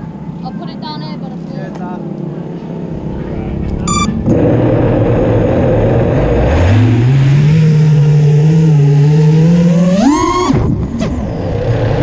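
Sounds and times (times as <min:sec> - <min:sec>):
quadcopter motors humming: 0:07.4 - 0:12.0.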